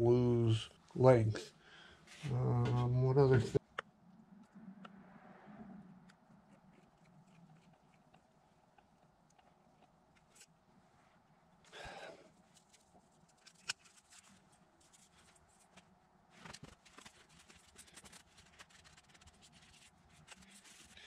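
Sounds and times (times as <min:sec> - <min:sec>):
rustling: 0:12.3 - 0:21.0.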